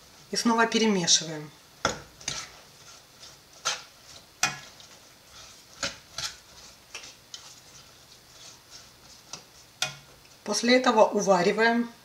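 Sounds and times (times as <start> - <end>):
metal spoon clinking on saucepan: 4.4 - 4.7.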